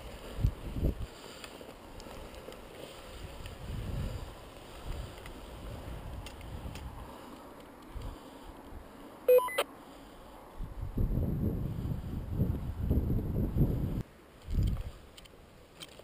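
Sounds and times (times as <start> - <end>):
wind buffeting microphone: 0.0 - 1.1, 3.1 - 7.1, 10.6 - 15.0.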